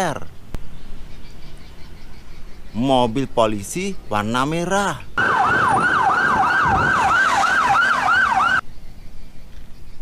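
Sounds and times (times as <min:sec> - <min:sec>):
emergency siren yelping: 0:05.2 - 0:08.6.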